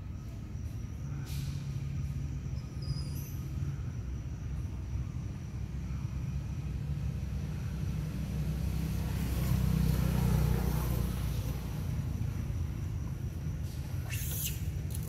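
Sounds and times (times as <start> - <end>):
road traffic rumble: 0.0 - 15.0
vehicle passing: 5.6 - 14.0.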